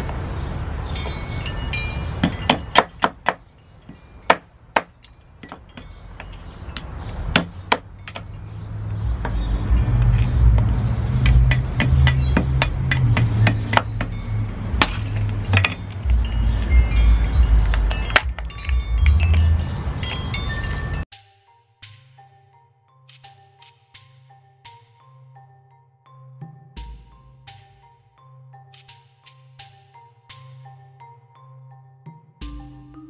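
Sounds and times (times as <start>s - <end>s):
cleaver chopping on wooden block: 2.2s - 5.9s, 7.3s - 8.3s, 10.0s - 14.1s.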